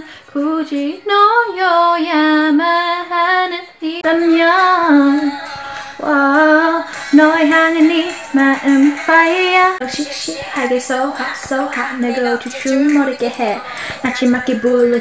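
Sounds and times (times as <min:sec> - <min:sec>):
woman singing unaccompanied: 0:00.0 - 0:15.0.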